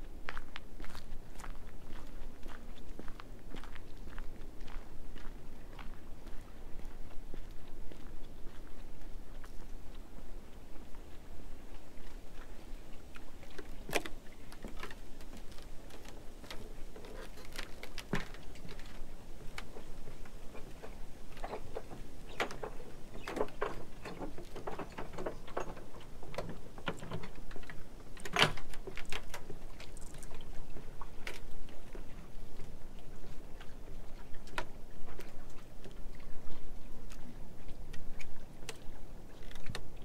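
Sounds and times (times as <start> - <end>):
footsteps on wooden planks: 10.8 - 30.1.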